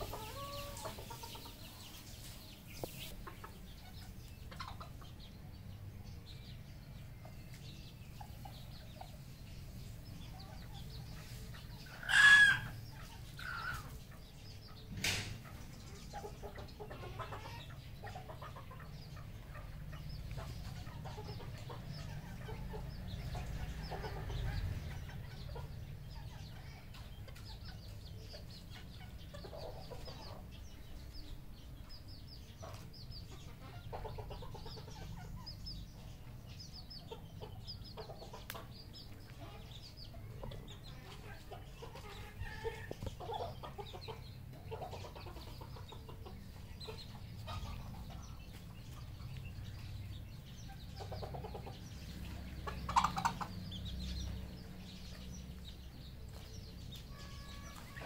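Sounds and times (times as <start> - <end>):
junglefowl clucking and calling: 0.0 - 2.0, 10.4 - 14.2, 15.4 - 27.9, 50.7 - 54.2.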